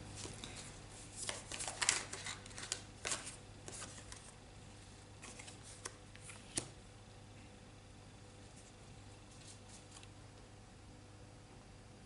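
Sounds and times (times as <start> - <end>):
cards rustling and clicking: 0.2 - 4.4, 5.2 - 6.8.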